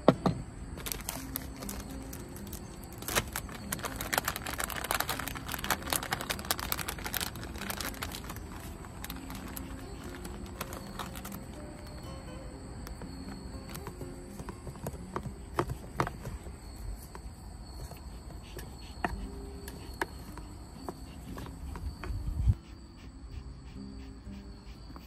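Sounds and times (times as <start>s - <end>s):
plastic pouch crinkling: 0.8s - 11.6s.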